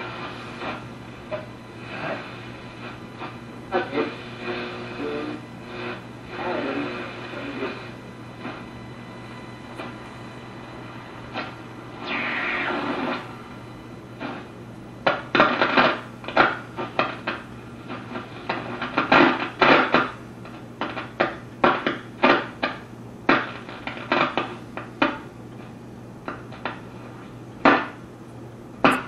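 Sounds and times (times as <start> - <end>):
radio static crackle: 0.0 - 28.0
low hum: 7.6 - 15.2.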